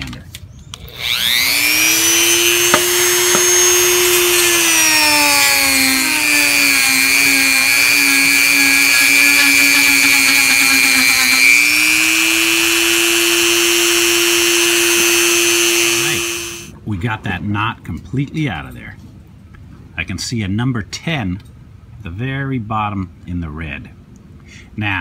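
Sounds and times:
rotary tool sanding plastic: 0.9 - 16.7.

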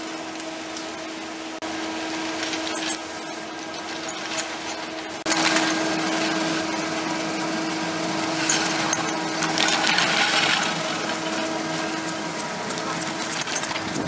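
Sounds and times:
steady low hum: 0.0 - 14.0
skis scraping over icy snow: 1.8 - 14.0
scattered clicks: 8.2 - 14.0.

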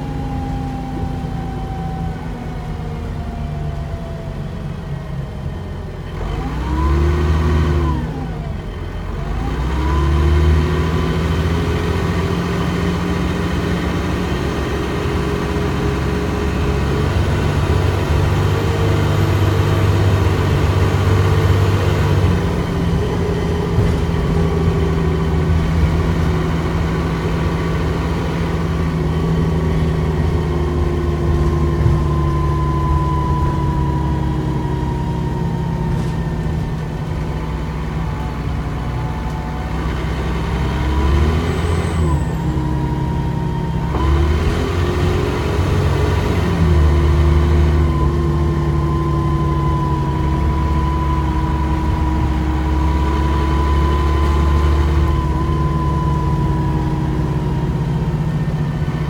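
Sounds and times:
bus diesel engine rumble: 0.0 - 59.0
driveline whine: 13.4 - 59.0.

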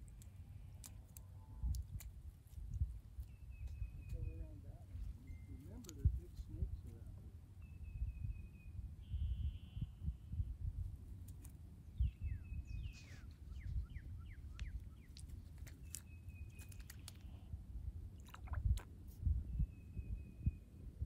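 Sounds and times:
wind rumble on microphone: 1.1 - 21.0
birds whistling and chirping: 3.2 - 5.8, 7.6 - 10.2, 12.0 - 15.2, 15.8 - 17.4, 19.5 - 20.8.

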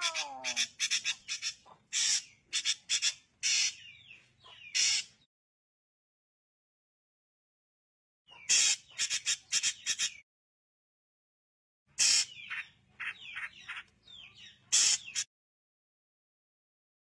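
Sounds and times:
bird calling harsh notes: 0.0 - 4.0, 4.6 - 5.3, 8.3 - 10.2, 11.9 - 13.9, 14.7 - 15.3.

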